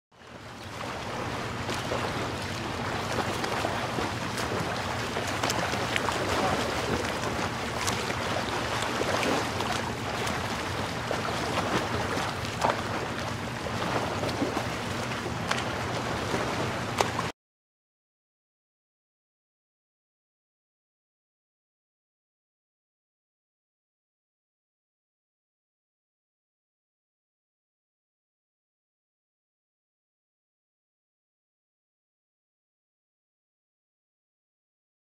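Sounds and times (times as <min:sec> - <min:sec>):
small knocks and splashes: 0:00.6 - 0:17.3
water washing against kayak hull: 0:00.6 - 0:17.3.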